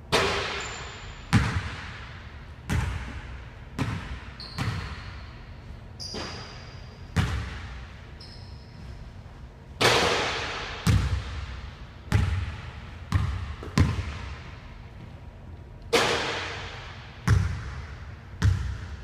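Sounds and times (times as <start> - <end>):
basketball bouncing on wooden floor: 3.8 - 5.1, 7.2 - 7.8, 10.8 - 11.4, 12.1 - 14.4, 17.2 - 19.0
short high squeaks: 6.0 - 7.0, 8.2 - 8.9.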